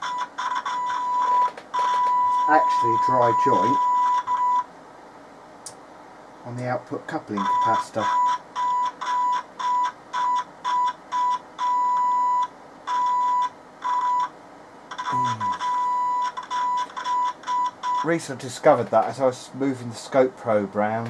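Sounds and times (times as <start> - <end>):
test tone beeps from radio speaker: 0.0 - 4.7, 7.4 - 14.3, 14.9 - 18.1.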